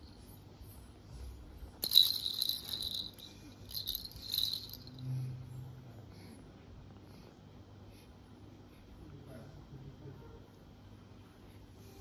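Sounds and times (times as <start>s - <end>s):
baby toy jingling and rattling: 1.8s - 5.2s.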